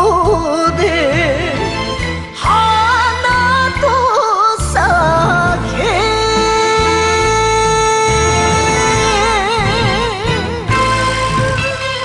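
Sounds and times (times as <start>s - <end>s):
woman singing with vibrato: 2.4s - 12.0s
band accompaniment: 4.8s - 12.0s.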